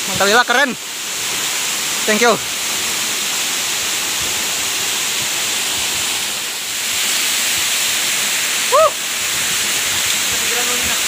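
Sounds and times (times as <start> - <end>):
waterfall rushing: 0.0 - 11.0
short voiced call: 8.7 - 9.0.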